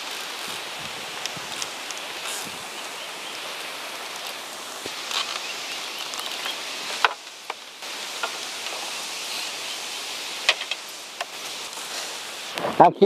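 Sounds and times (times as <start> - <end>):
river water rushing: 0.0 - 12.9
footsteps on bamboo bridge slats: 4.2 - 8.9.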